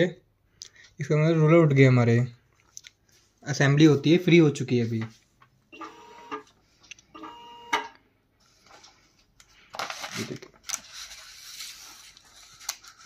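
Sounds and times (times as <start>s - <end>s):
paper rustling and sliding: 8.4s - 13.0s.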